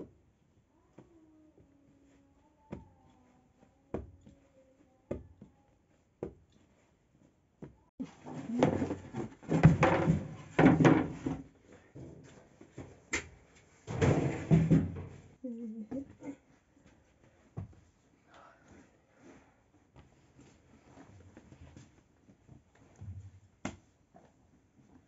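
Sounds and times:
wooden boards scraping and knocking: 0:08.1 - 0:11.5.

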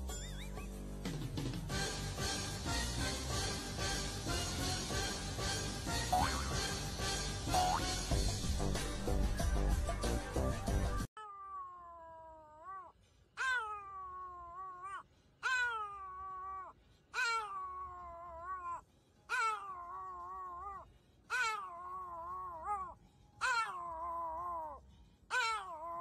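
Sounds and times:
small dog howling: 0:11.2 - 0:26.0.

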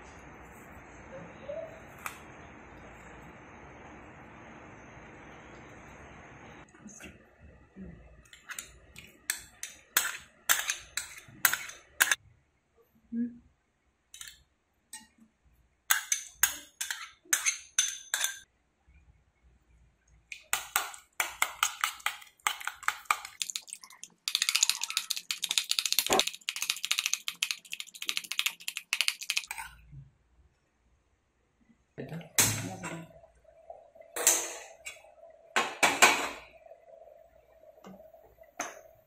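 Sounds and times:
spoon beating eggs in steel bowl: 0:08.3 - 0:12.2, 0:15.9 - 0:18.5, 0:20.3 - 0:29.8.

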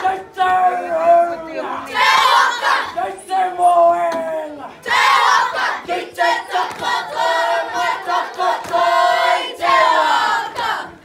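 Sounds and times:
children and adults chanting: 0:01.8 - 0:03.2, 0:04.8 - 0:11.0.

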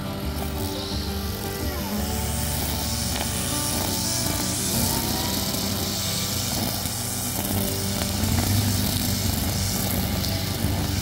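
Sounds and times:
brush cutter cutting grass: 0:00.0 - 0:11.0.

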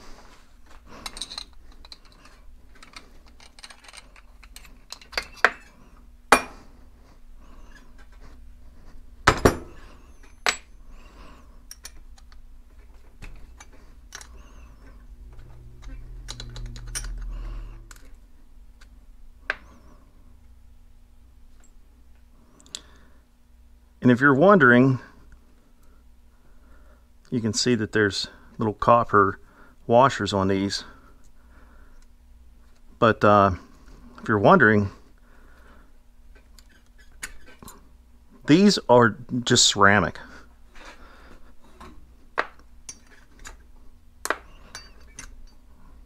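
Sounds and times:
low hum: 0:00.0 - 0:22.5
metal parts clattering on a tray: 0:01.0 - 0:05.7.

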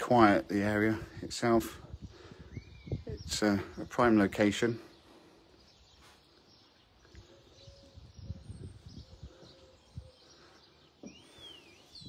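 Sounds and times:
faint bird chirps: 0:01.8 - 0:03.9, 0:04.6 - 0:12.0.

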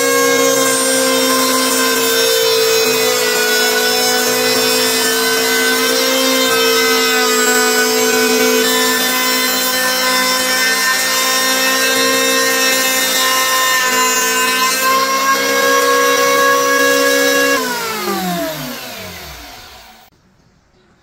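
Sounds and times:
electric planer shaving wood: 0:00.0 - 0:20.1
planer motor winding down: 0:11.6 - 0:20.1.

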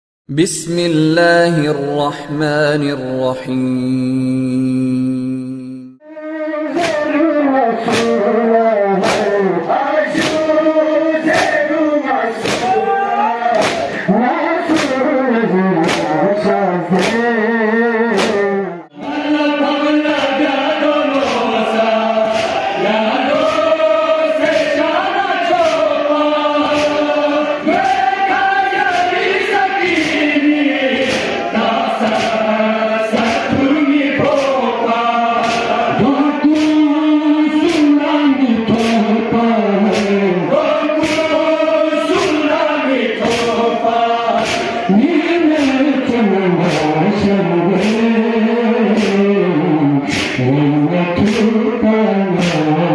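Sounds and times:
male voices chanting: 0:00.3 - 0:52.9
reciter chanting into microphone: 0:00.3 - 0:52.9
chest beating slaps: 0:07.8 - 0:08.3, 0:09.0 - 0:09.4, 0:10.2 - 0:10.6, 0:11.3 - 0:11.6, 0:12.4 - 0:12.8, 0:13.5 - 0:14.1, 0:15.8 - 0:16.2, 0:17.0 - 0:17.3, 0:18.1 - 0:18.5, 0:22.2 - 0:22.7, 0:25.4 - 0:25.9, 0:26.6 - 0:28.1, 0:28.8 - 0:32.5, 0:33.1 - 0:34.6, 0:35.3 - 0:36.9, 0:37.6 - 0:38.0, 0:38.7 - 0:39.1, 0:39.8 - 0:41.5, 0:42.1 - 0:42.5, 0:43.2 - 0:43.7, 0:44.3 - 0:44.9, 0:45.5 - 0:45.9, 0:46.6 - 0:47.1, 0:47.7 - 0:48.2, 0:48.8 - 0:49.3, 0:50.0 - 0:50.5, 0:51.2 - 0:51.6, 0:52.3 - 0:52.9.

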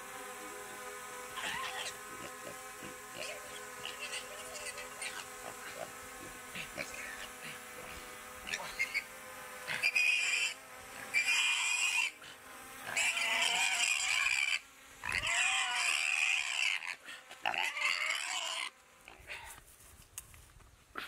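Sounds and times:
pig squealing: 0:01.3 - 0:09.1, 0:09.7 - 0:12.2, 0:12.8 - 0:19.3.

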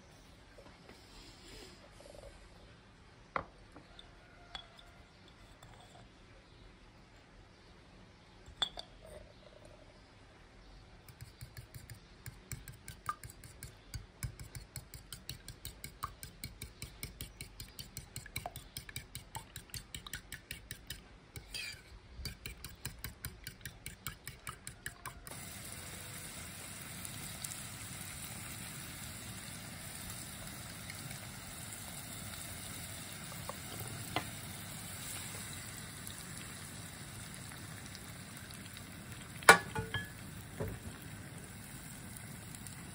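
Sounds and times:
metal spoon beating eggs in bowl: 0:11.1 - 0:25.4
egg poured into pan: 0:25.2 - 0:42.9
mushrooms sizzling in a pan: 0:25.3 - 0:42.9.

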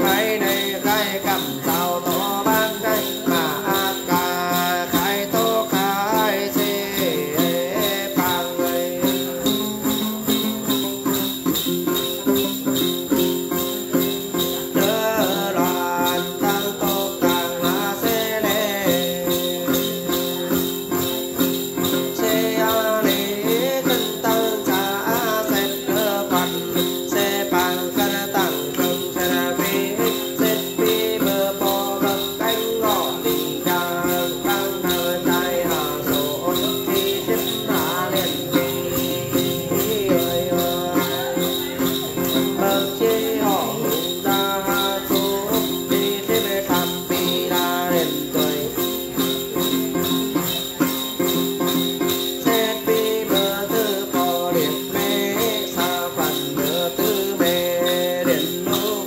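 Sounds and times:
male voice chanting: 0:00.0 - 0:11.0, 0:21.9 - 0:48.9
plucked lute: 0:00.0 - 0:59.0
small bells shaken: 0:00.0 - 0:59.0.

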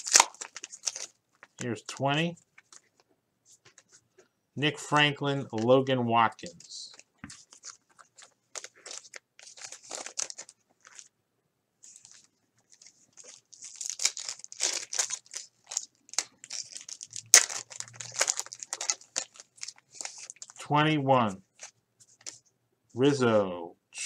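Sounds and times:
foil wrapper crackling: 0:00.0 - 0:01.7, 0:06.8 - 0:11.1, 0:11.9 - 0:20.6
plastic bags crinkling: 0:00.0 - 0:01.7, 0:06.8 - 0:11.1, 0:11.9 - 0:20.6.

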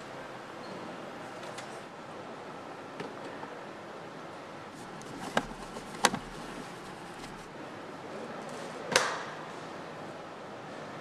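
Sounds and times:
hard plastic clicks: 0:05.2 - 0:06.3
factory hall noise: 0:06.4 - 0:11.0.

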